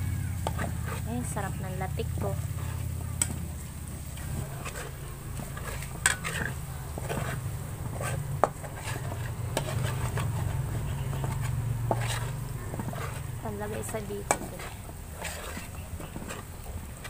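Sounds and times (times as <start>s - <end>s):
low steady hum: 0.0s - 17.0s
metal spatula scraping wok: 0.0s - 17.0s
oil sizzling: 0.0s - 17.0s
spatula clanking on pan: 4.2s - 16.4s.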